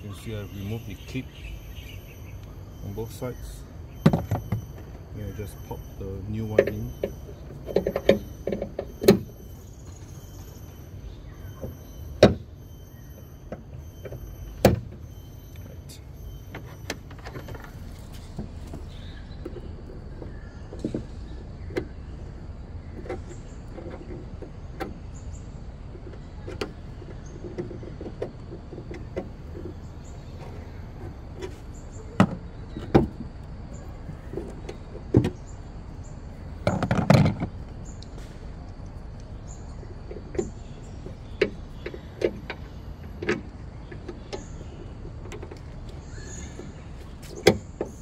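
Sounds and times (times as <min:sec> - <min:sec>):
gas struts clicking and knocking: 0:04.0 - 0:09.4, 0:22.9 - 0:35.6, 0:36.5 - 0:48.0.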